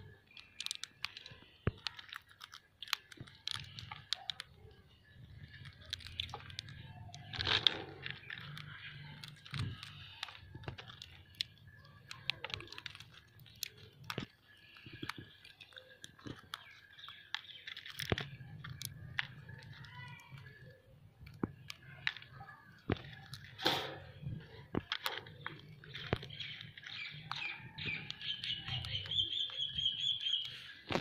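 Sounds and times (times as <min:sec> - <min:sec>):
parakeets cracking chickpeas: 0:00.0 - 0:31.0.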